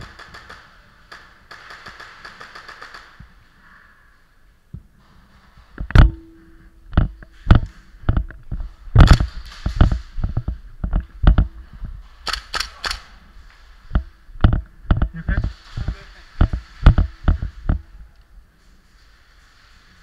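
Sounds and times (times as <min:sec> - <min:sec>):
airsoft rifle firing: 0:00.0 - 0:03.2, 0:09.0 - 0:10.2.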